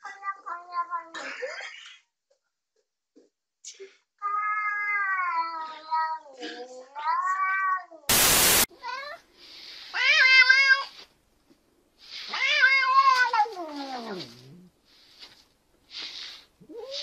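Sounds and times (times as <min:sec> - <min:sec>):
cats meowing: 0:04.3 - 0:08.1, 0:12.2 - 0:14.7
cat hissing: 0:12.0 - 0:17.0.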